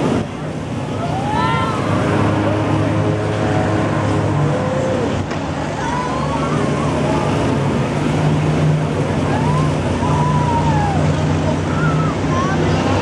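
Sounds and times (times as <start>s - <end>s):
swinging ride rushing hum: 0.0s - 13.0s
riders yelling: 1.0s - 2.0s.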